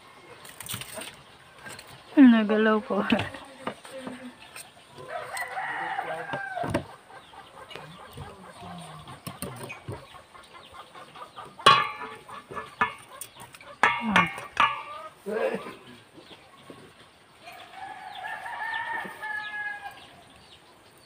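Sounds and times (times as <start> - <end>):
chickens clucking: 0.0 - 21.0
rooster crowing: 4.1 - 6.9, 17.4 - 20.3.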